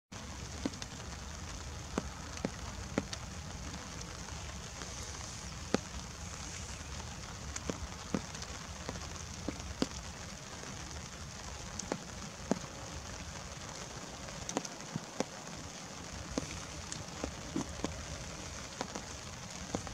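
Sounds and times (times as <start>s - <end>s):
light rain hissing: 0.1s - 19.9s
raindrops ticking close by: 0.1s - 19.9s.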